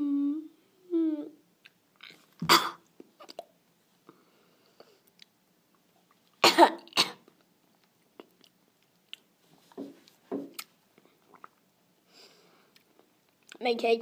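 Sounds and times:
boy coughing: 2.4s - 2.8s, 6.4s - 7.2s.

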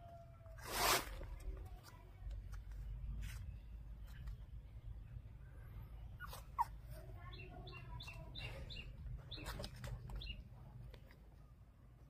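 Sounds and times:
puppies squeaking and whimpering: 6.1s - 7.0s.

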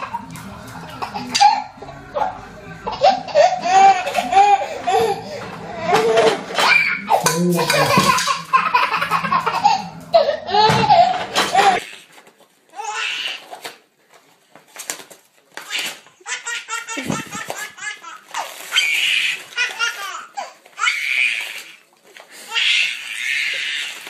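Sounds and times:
baby laughing: 0.0s - 12.0s, 15.6s - 21.0s.

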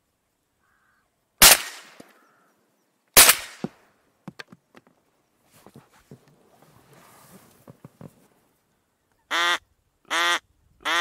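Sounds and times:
shotgun shots: 1.4s - 2.1s, 3.2s - 3.8s.

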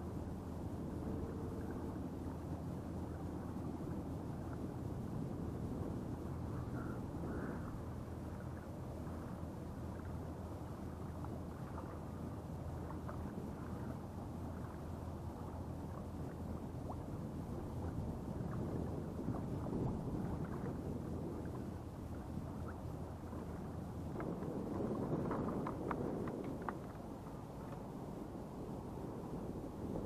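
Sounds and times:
water lapping against kayak hull: 0.0s - 30.0s.

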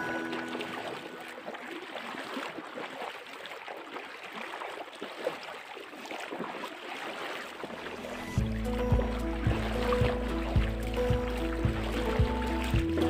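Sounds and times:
river water rushing: 0.0s - 3.0s, 7.2s - 13.0s.

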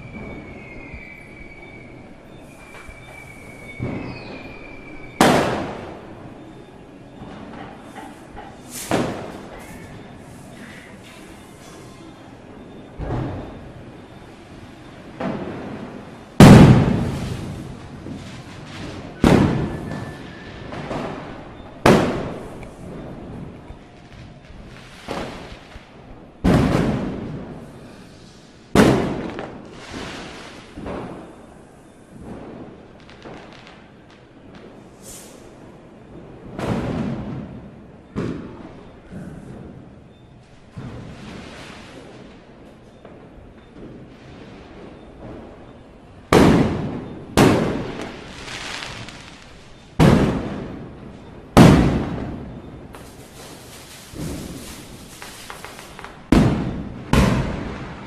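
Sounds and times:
firecracker bangs: 0.0s - 6.2s, 7.2s - 10.1s, 15.1s - 35.5s, 36.2s - 40.1s, 40.7s - 58.0s
echo of bangs: 3.7s - 4.4s, 5.2s - 6.6s, 15.1s - 27.6s, 28.8s - 31.4s, 43.0s - 58.0s.

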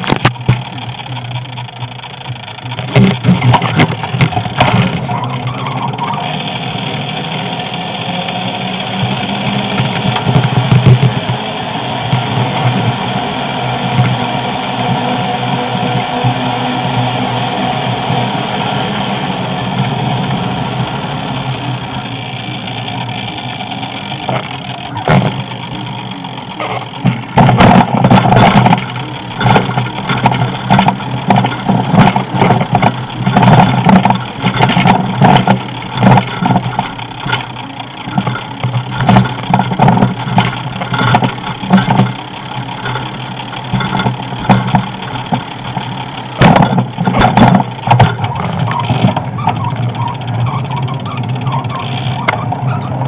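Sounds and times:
bike bumps and rattles: 0.0s - 53.0s
wind and rolling noise: 0.0s - 53.0s.

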